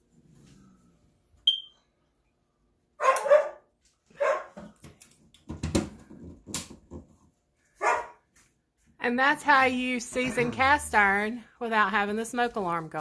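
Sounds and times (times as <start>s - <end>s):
smoke alarm chirp: 1.4s - 1.9s
dog barking: 3.0s - 4.6s, 7.8s - 8.2s.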